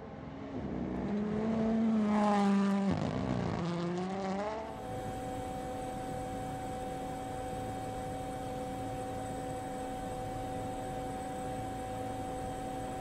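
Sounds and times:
steady tonal hum: 0:04.7 - 0:13.0.

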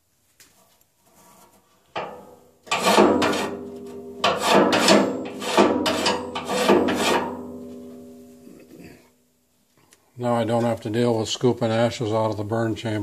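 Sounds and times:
metal grate rasping scrapes: 0:01.1 - 0:07.9
steel stove body ringing: 0:02.0 - 0:08.4.

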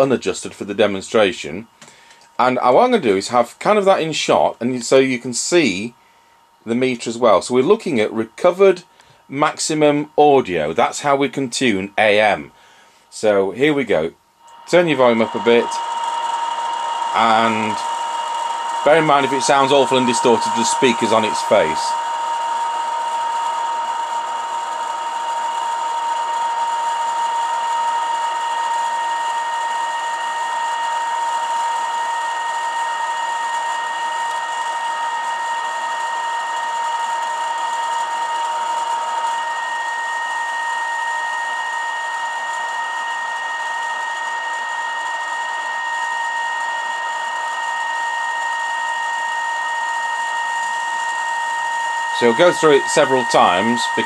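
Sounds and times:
steady radio test tone: 0:00.0 - 0:01.7, 0:13.2 - 0:54.0
radio hiss: 0:06.6 - 0:25.4, 0:52.1 - 0:54.0
fainter higher overtone: 0:13.8 - 0:31.1, 0:32.0 - 0:54.0.

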